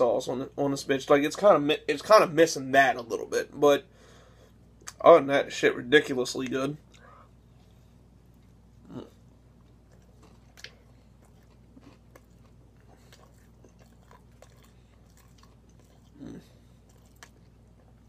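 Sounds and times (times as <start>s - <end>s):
faint low hum: 0.0s - 18.0s
man chewing food: 6.8s - 18.0s.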